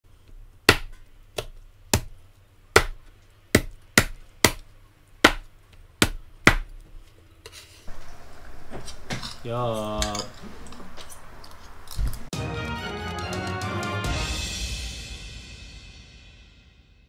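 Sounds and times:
knife chopping on plastic board: 0.6 - 6.8.

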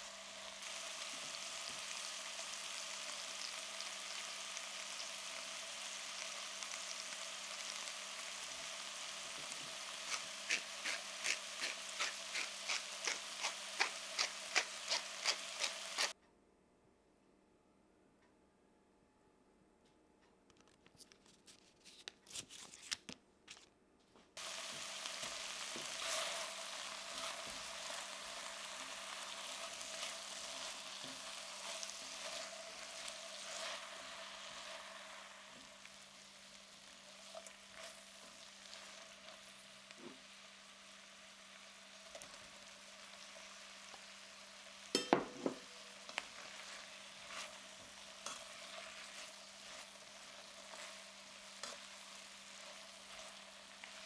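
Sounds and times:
vegetables sizzling in frying pan: 0.0 - 16.2, 24.4 - 54.0
spatula stirring: 10.0 - 16.2, 25.2 - 34.9, 44.9 - 54.0
sharp knocks against pan: 45.0 - 45.7.

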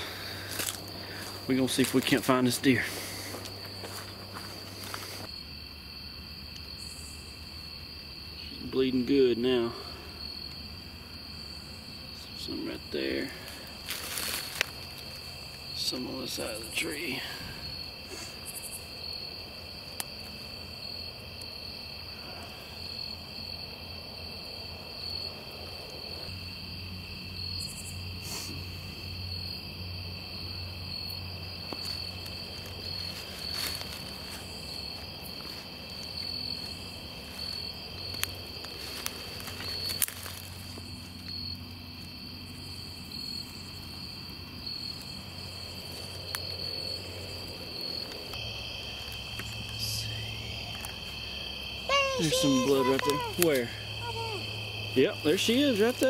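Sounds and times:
night insects chorus: 0.0 - 56.0
footsteps through leaf litter: 13.4 - 15.2, 31.8 - 37.7, 38.5 - 41.0.

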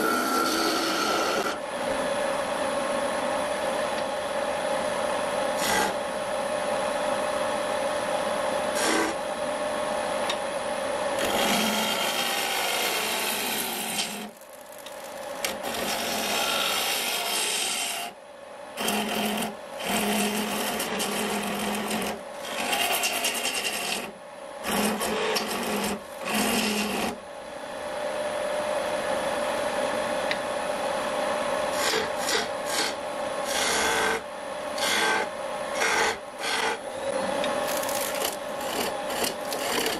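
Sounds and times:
wood lathe tool scraping wood: 0.0 - 1.6, 5.6 - 6.0, 8.8 - 9.2, 11.2 - 18.1, 18.8 - 27.2, 31.7 - 34.2, 34.8 - 36.8, 37.6 - 39.9.

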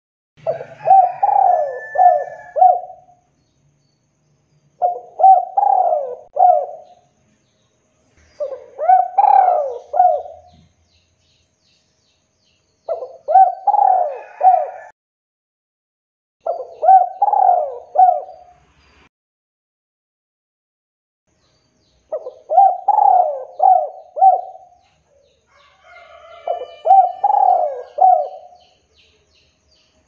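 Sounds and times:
dove cooing: 0.4 - 3.2, 4.8 - 7.0, 8.4 - 10.7, 12.9 - 14.9, 16.4 - 18.5, 22.1 - 28.6.

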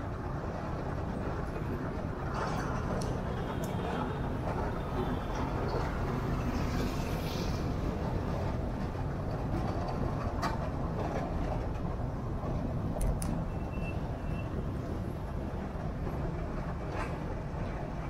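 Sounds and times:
car road and engine noise: 0.0 - 18.0.

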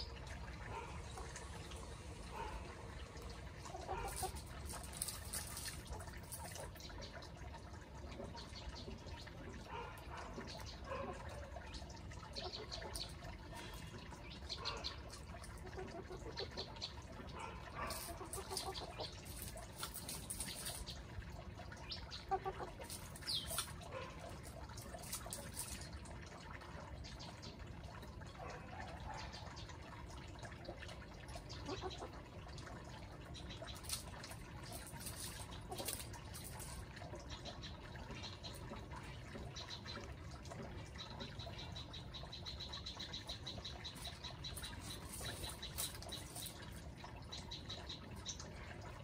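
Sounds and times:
low outdoor hum: 0.0 - 49.0
chickens scratching and pecking: 3.4 - 6.8, 17.3 - 21.2, 22.2 - 26.0, 33.5 - 37.5, 43.3 - 47.0.

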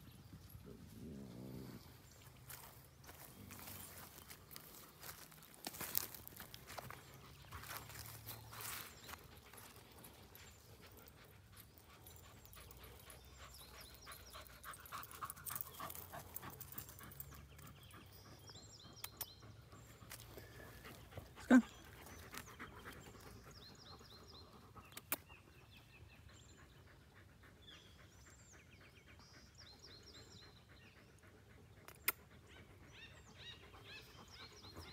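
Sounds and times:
small birds chirping: 0.0 - 34.9.

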